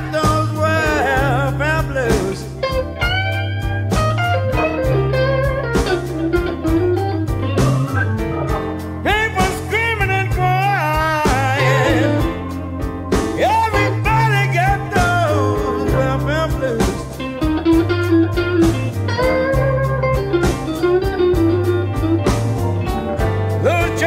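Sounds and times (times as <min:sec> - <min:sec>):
electric blues band playing: 0:00.0 - 0:24.0
lead guitar bending notes: 0:00.0 - 0:24.0.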